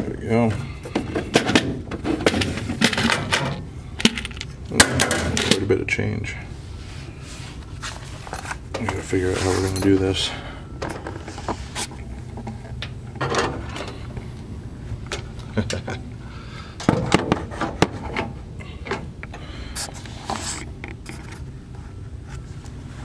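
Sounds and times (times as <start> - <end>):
coins and cash bag handling: 4.0 - 4.6, 7.9 - 10.2.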